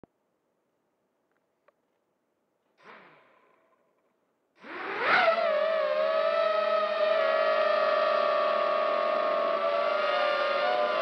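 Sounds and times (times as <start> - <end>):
drone motors whining: 4.6 - 11.0.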